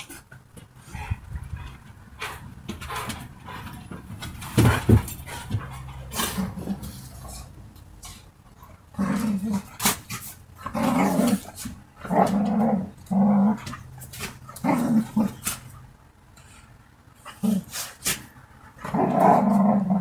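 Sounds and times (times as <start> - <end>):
dogs growling: 0.8 - 7.6, 8.6 - 15.7, 18.7 - 20.0.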